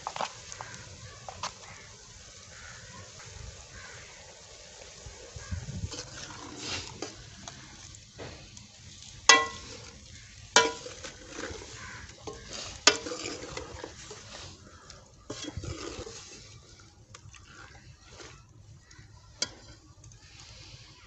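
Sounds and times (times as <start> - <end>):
chicken sizzling in a pan: 0.0 - 21.0
ladle scraping pan: 5.9 - 7.9, 9.2 - 21.0
ladle clanging on pot: 9.3 - 9.9, 10.6 - 14.2, 15.3 - 16.2, 19.4 - 19.8.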